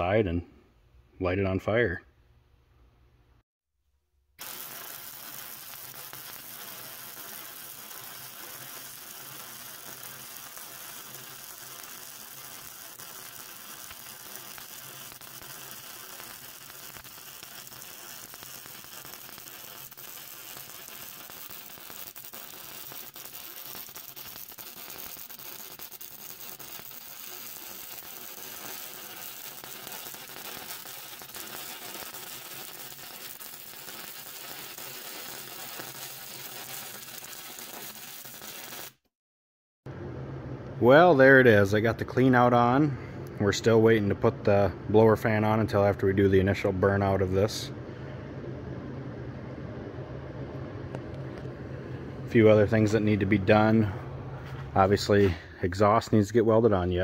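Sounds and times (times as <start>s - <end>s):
arc welding crackling sizzle: 4.4s - 39.1s.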